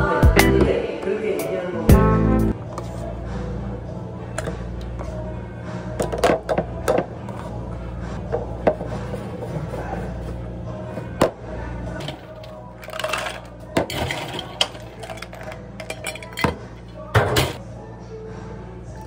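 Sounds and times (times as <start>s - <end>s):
ice cubes rattling into cup: 12.0s - 16.5s
utensils clinking on plastic cup: 12.0s - 16.6s.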